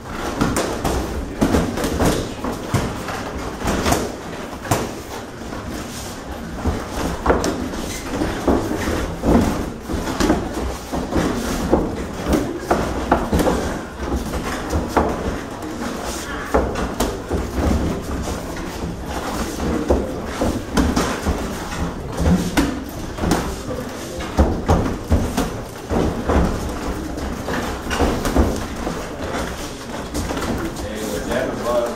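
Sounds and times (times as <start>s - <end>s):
murmur of spectators: 0.0s - 31.9s.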